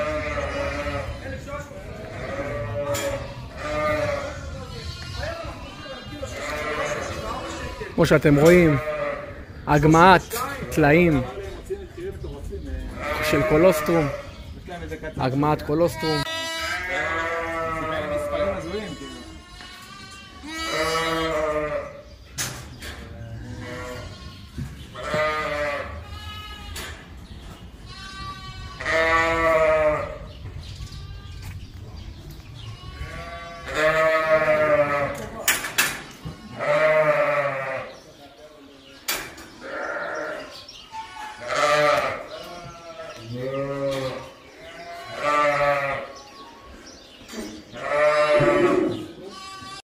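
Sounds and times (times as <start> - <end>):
lambs bleating: 0.0 - 9.5, 12.9 - 14.4, 15.9 - 22.1, 23.4 - 26.8, 27.8 - 31.5, 32.6 - 35.3, 36.3 - 38.0, 39.6 - 46.4, 47.7 - 49.8.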